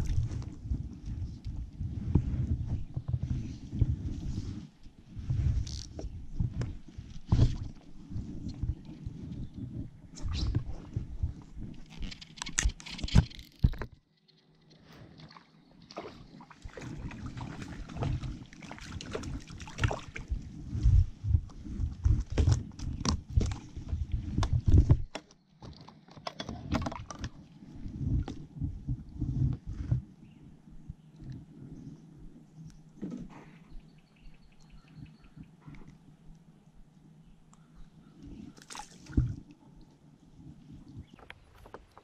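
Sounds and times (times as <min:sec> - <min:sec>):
water sloshing against hull: 0:00.0 - 0:36.3, 0:37.5 - 0:42.0
fishing rod knocks and scrapes: 0:22.0 - 0:27.4.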